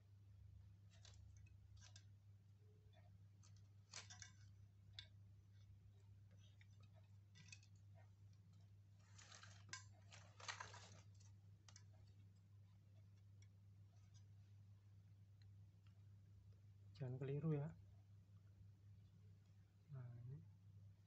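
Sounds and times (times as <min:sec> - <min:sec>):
soft handling rustle: 0:02.9 - 0:14.7.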